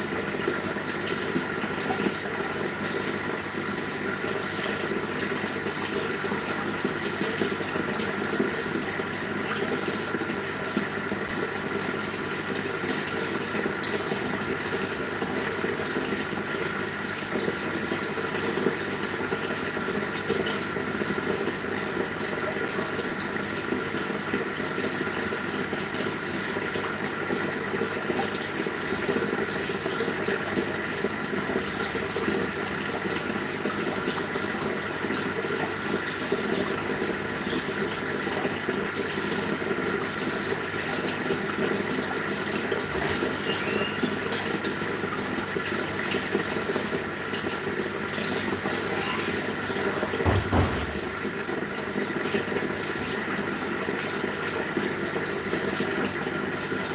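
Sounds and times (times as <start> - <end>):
aquarium air stones bubbling: 40.4 - 45.5.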